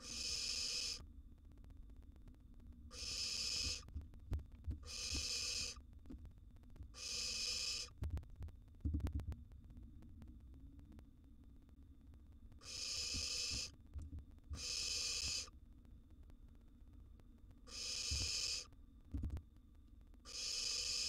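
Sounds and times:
owl nestlings hissing: 0.0 - 1.0, 2.9 - 3.9, 4.8 - 5.8, 7.0 - 8.0, 12.6 - 13.8, 14.6 - 15.5, 17.7 - 18.7, 20.3 - 21.0.

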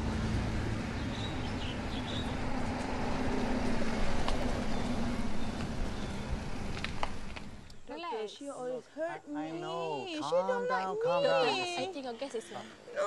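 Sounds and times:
car engine hum: 0.0 - 7.9
tyre noise on road: 0.0 - 7.9.

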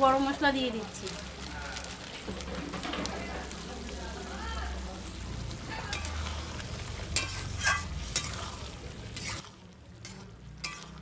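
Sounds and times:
spatula stirring curry in pan: 5.0 - 11.0
spatula scraping and knocking pan: 7.1 - 8.5.

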